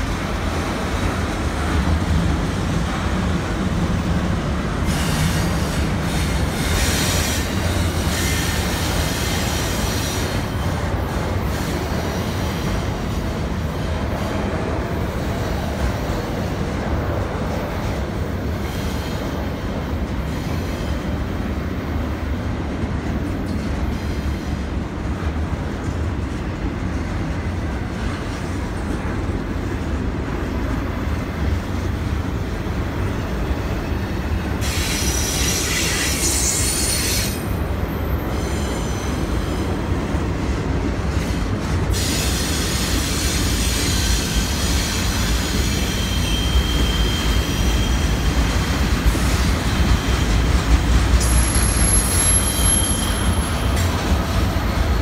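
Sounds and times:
train wheels rumbling on rail: 0:00.0 - 0:55.0
high wheel squeal: 0:33.5 - 0:39.7, 0:42.0 - 0:48.7, 0:51.2 - 0:55.0.

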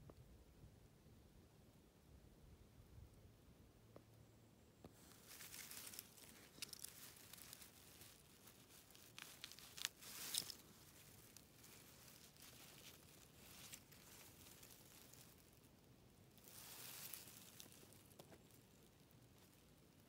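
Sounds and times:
dry grass and leaves rustling: 0:04.7 - 0:20.0.

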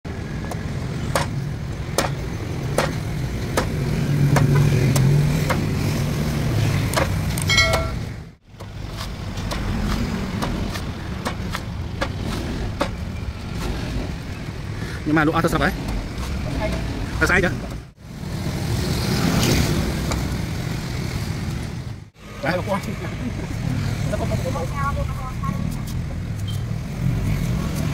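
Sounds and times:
cleaver chopping coconut husk: 0:00.5 - 0:05.8, 0:08.5 - 0:13.0.

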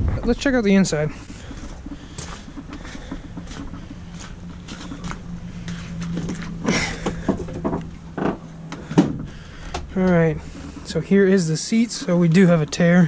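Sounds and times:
footsteps: 0:00.0 - 0:13.0
steady low hum: 0:00.0 - 0:13.0
handling noises: 0:00.5 - 0:13.0
truck door clunk: 0:06.7 - 0:09.9.

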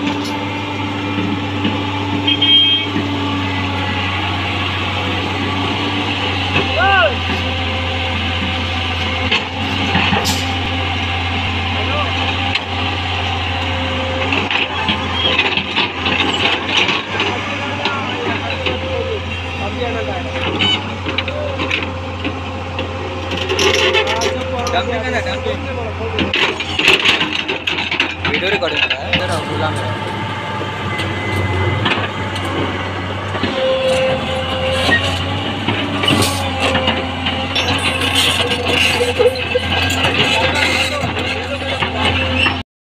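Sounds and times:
steady whine: 0:00.0 - 0:42.4
excavator diesel engine running: 0:00.0 - 0:42.6.

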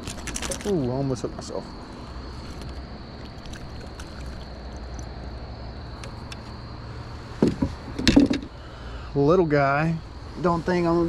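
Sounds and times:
louder knocks: 0:07.4 - 0:08.5.

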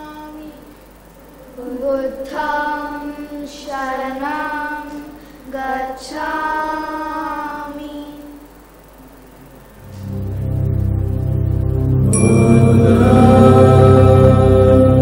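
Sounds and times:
children singing chant: 0:01.6 - 0:08.0, 0:12.1 - 0:15.0.

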